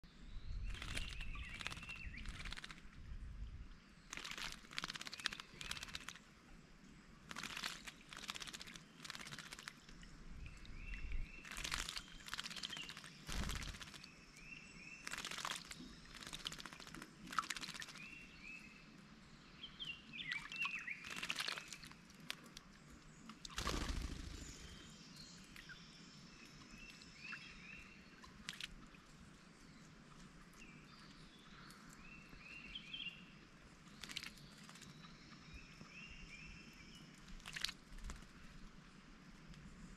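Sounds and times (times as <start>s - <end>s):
chirping bird calls: 0.6s - 2.7s
birds splashing in water: 0.7s - 3.0s, 4.1s - 6.3s, 7.2s - 14.4s, 15.0s - 18.3s, 20.2s - 22.6s, 23.4s - 24.8s, 28.1s - 29.1s, 33.8s - 35.0s, 37.2s - 38.6s.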